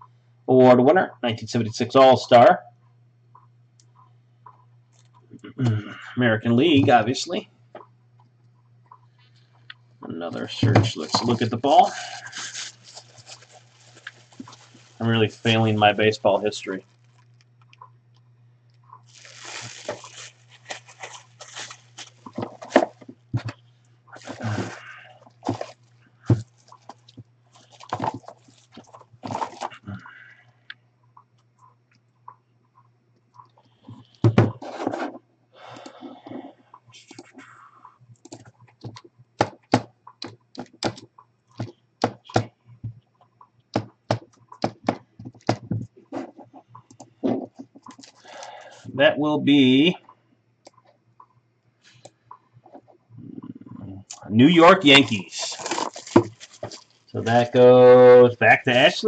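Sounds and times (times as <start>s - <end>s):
low electrical hum: 0.0s - 59.0s
plastic bag crinkling: 10.4s - 17.7s, 19.0s - 23.6s, 24.2s - 29.8s, 47.2s - 48.9s, 54.8s - 57.6s
rustling: 10.4s - 17.8s, 19.0s - 29.8s, 54.7s - 57.6s
cardboard knocks and taps: 43.8s - 45.9s.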